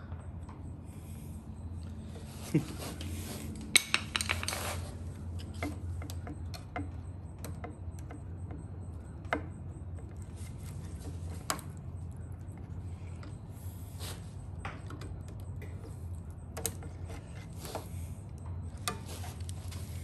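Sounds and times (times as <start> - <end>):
low hum: 0.0 - 20.0
hand tools clicking and clinking: 2.4 - 7.0.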